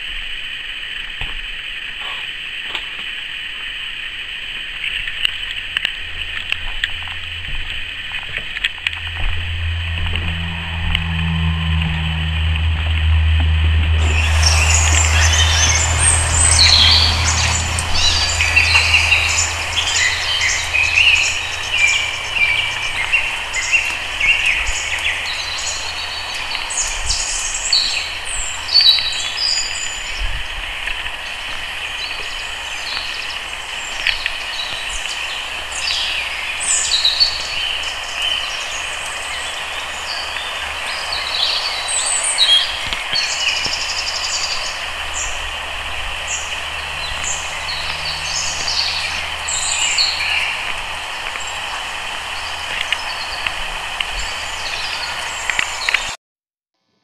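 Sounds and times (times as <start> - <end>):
low rumble: 6.0 - 27.4, 43.8 - 55.2.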